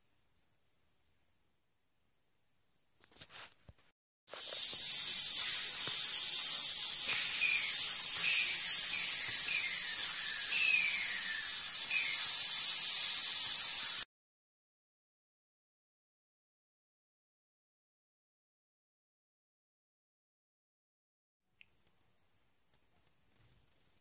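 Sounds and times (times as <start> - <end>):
air compressor hissing: 4.3 - 14.0.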